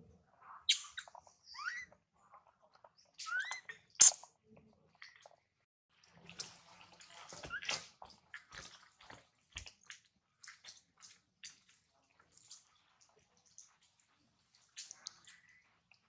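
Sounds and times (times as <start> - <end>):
baby monkey squeak: 0.6 - 2.0, 3.2 - 4.3.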